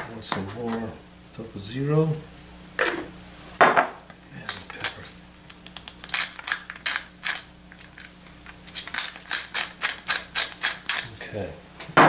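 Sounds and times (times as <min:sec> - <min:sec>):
spice grinder clicking: 0:04.4 - 0:11.3.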